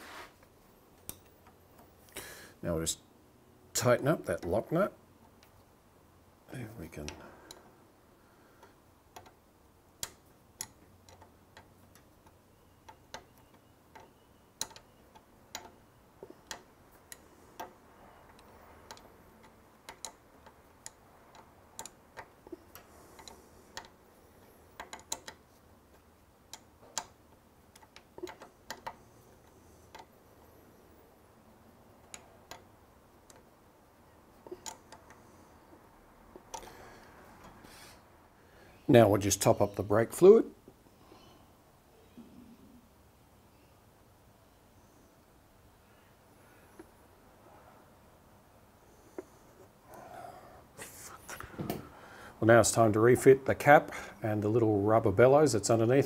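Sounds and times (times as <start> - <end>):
wrench clicking on metal: 16.4 - 24.0, 24.6 - 30.1, 34.4 - 35.4.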